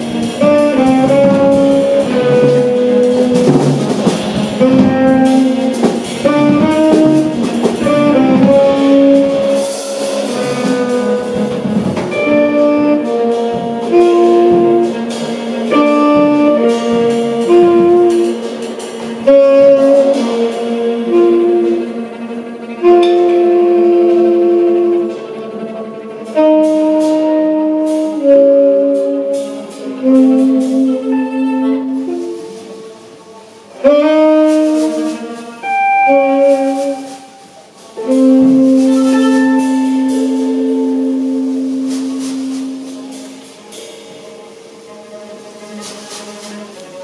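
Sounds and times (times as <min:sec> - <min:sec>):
electric guitar: 0:00.0 - 0:25.6, 0:33.8 - 0:37.4
bowed cello: 0:00.0 - 0:47.0
drum kit with cymbals: 0:00.0 - 0:47.0
saxophone: 0:00.0 - 0:47.0.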